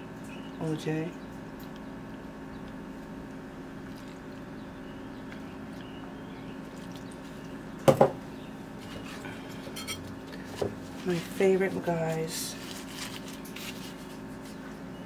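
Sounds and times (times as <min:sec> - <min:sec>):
steady background hum: 0:00.0 - 0:15.0
juice pouring: 0:03.3 - 0:04.6, 0:06.6 - 0:07.7.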